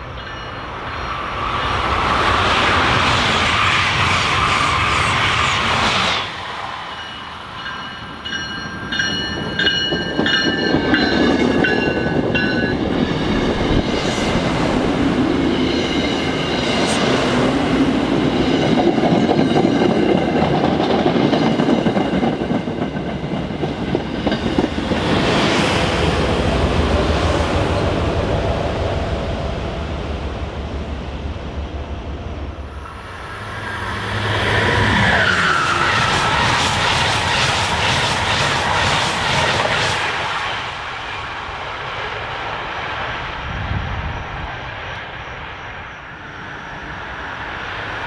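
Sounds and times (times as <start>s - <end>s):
train wheels clattering and squealing: 0.0s - 28.2s, 32.7s - 41.0s
train rushing past: 0.0s - 48.0s.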